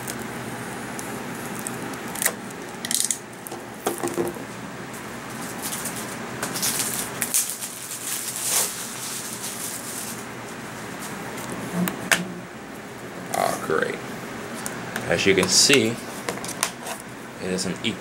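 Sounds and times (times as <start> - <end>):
cellophane crinkling: 5.3 - 10.3.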